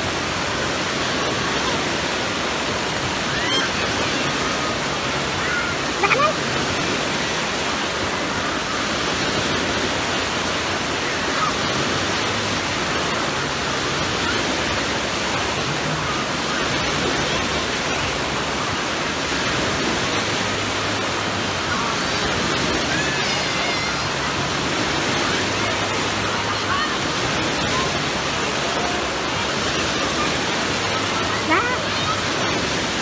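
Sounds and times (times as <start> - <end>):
waves breaking in a pool: 0.0 - 33.0
swimmers shouting: 22.6 - 24.5.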